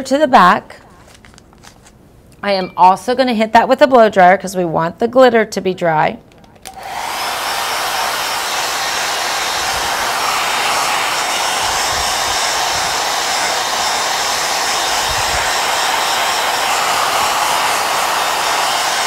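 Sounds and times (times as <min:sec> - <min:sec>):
hair dryer blowing: 0:06.7 - 0:19.0.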